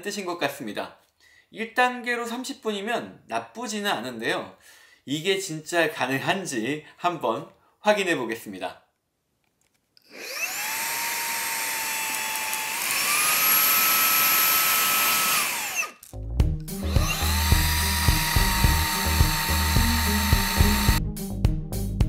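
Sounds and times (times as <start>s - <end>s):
handheld vacuum motor whining: 10.0s - 16.0s, 16.8s - 21.0s
background music with a beat: 16.2s - 22.0s.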